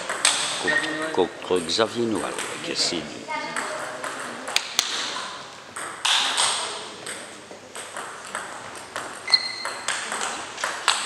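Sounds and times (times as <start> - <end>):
table tennis balls clicking: 0.0 - 0.6, 3.5 - 11.0
brief high squeak: 9.3 - 9.9.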